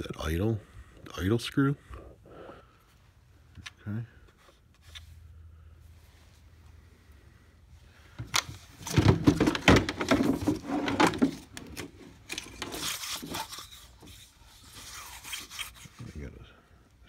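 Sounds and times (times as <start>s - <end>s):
hard plastic knocking and clattering: 8.2s - 11.9s.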